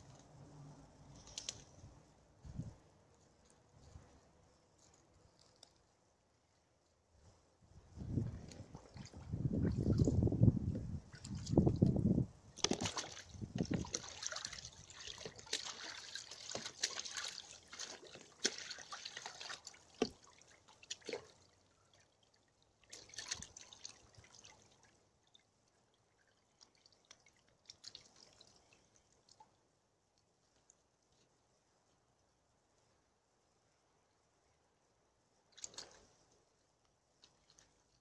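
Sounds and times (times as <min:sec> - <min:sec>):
water splashing and sloshing: 0:06.9 - 0:32.1, 0:35.4 - 0:38.0.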